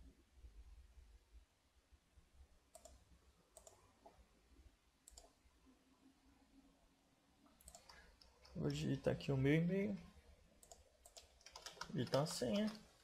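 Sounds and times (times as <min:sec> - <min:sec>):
computer mouse clicks: 0:02.7 - 0:03.8, 0:05.0 - 0:05.4, 0:07.6 - 0:08.8, 0:10.6 - 0:12.8.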